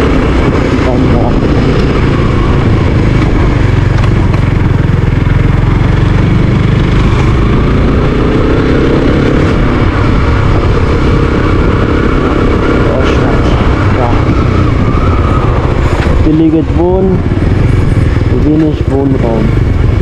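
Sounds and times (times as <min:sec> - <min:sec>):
motorcycle engine running: 0:00.0 - 0:20.0
wind noise: 0:00.0 - 0:20.0.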